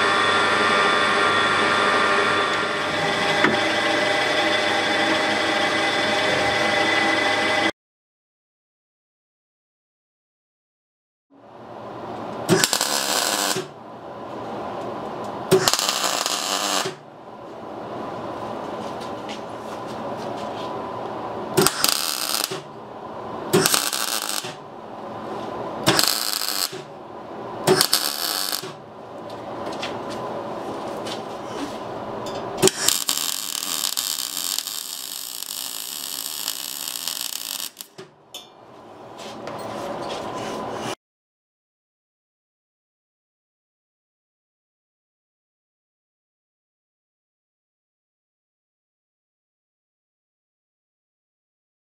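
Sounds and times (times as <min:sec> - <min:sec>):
steady hum: 0:00.0 - 0:07.7, 0:11.5 - 0:41.0
welder crackling: 0:12.5 - 0:13.7, 0:15.5 - 0:17.0, 0:21.6 - 0:22.8, 0:23.5 - 0:24.6, 0:25.8 - 0:26.9, 0:27.6 - 0:28.8, 0:32.6 - 0:38.1.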